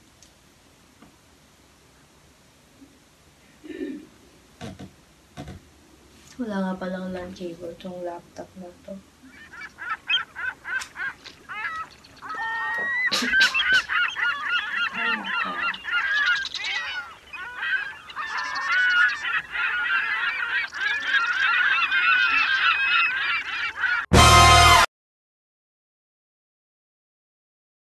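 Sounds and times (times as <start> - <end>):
flock of birds honking: 9.3 - 24.8.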